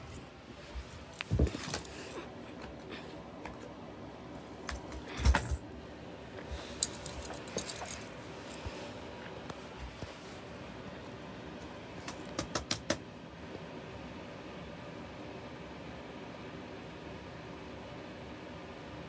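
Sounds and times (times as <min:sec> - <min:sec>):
rustling and clattering: 0:00.0 - 0:03.7, 0:06.5 - 0:10.5.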